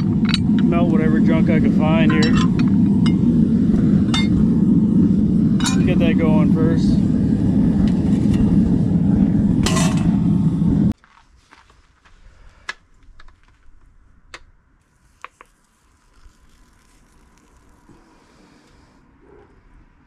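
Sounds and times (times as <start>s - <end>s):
furnace burner roaring: 0.0s - 11.0s, 17.1s - 20.0s.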